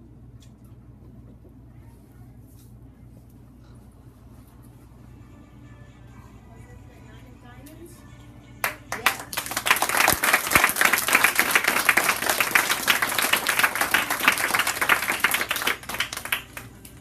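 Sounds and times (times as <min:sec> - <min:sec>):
audience clapping: 0:08.6 - 0:17.0.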